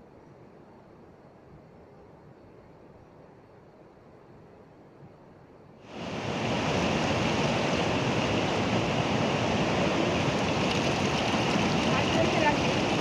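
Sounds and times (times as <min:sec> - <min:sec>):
river rushing over boulders: 0:05.9 - 0:13.0.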